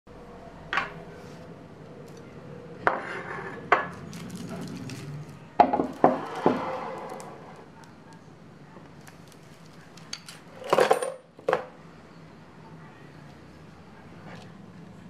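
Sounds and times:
items knocking on wooden table: 5.6 - 6.7.

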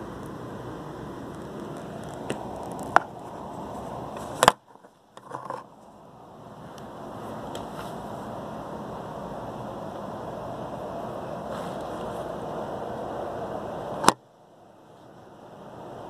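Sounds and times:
distant city noise: 0.0 - 16.0
wind: 0.0 - 16.0
phone handling clicks and scrapes: 3.7 - 5.9.

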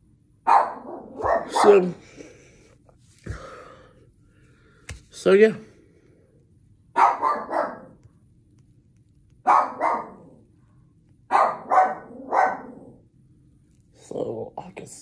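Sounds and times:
dog barking: 0.4 - 2.0, 6.9 - 8.0, 9.4 - 10.4, 11.3 - 13.0.

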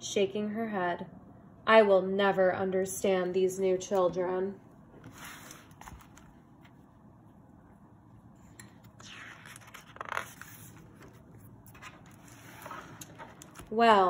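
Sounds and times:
book pages turning: 5.0 - 6.8, 9.0 - 13.8.

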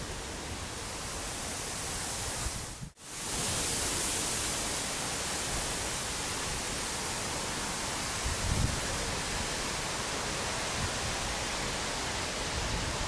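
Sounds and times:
outdoor noise hiss: 0.0 - 13.0.

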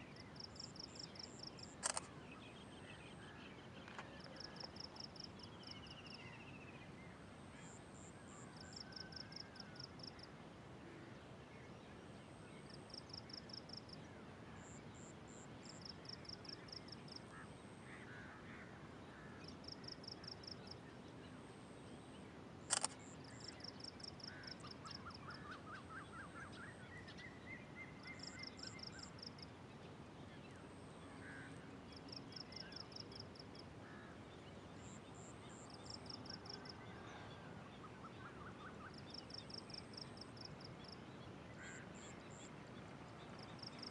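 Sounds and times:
sharp click: 1.8 - 2.1, 22.7 - 23.1.

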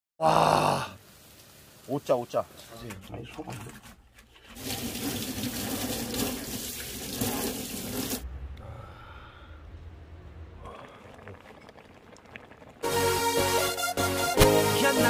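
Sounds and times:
tap water running into sink: 4.5 - 8.2.

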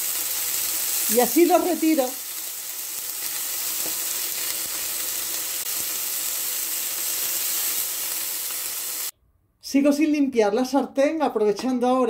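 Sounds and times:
chicken sizzling in a frying pan: 0.0 - 9.1.

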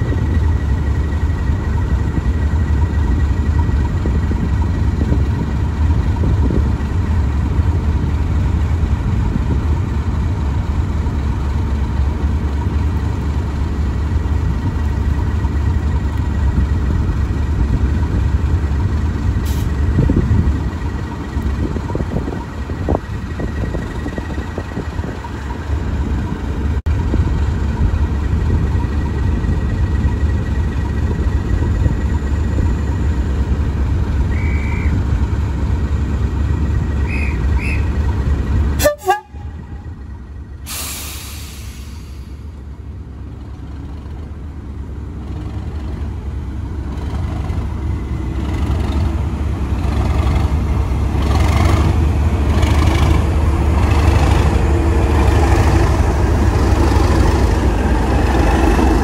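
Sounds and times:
diesel locomotive engine: 0.0 - 59.0
brake release hiss: 40.6 - 42.5.

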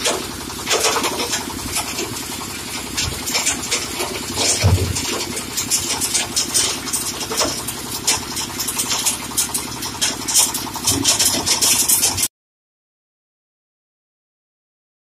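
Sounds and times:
crusher metallic clatter: 0.0 - 12.3
tractor engine running: 0.0 - 12.3.

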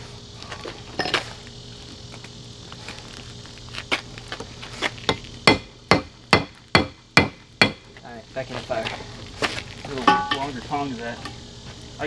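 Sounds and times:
low steady hum: 0.0 - 12.0
hammer striking steel on anvil: 10.0 - 10.5.

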